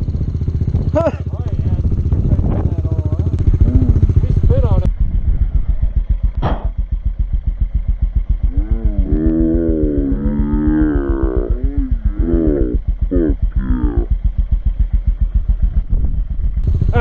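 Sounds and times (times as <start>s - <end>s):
motorcycle engine idling: 0.0s - 17.0s
moo-like vocal call: 3.6s - 4.1s, 8.5s - 14.1s.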